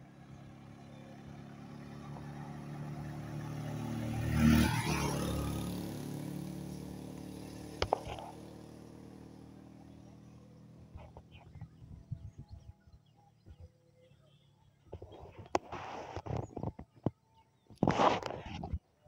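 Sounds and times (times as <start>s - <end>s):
vehicle passing by: 0.0s - 11.6s.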